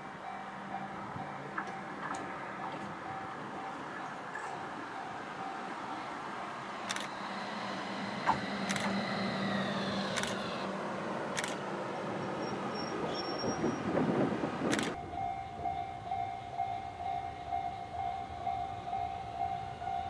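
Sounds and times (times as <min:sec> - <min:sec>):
tram motor hum and whine: 0:00.0 - 0:20.0
tram rumble: 0:00.0 - 0:20.0
sharp clicks from tram wheels: 0:00.8 - 0:04.6, 0:06.6 - 0:15.3.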